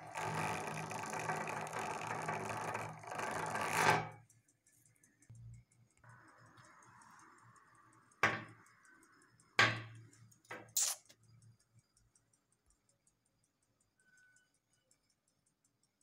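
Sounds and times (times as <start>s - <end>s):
sharp knocks and clicks: 8.2s - 8.7s.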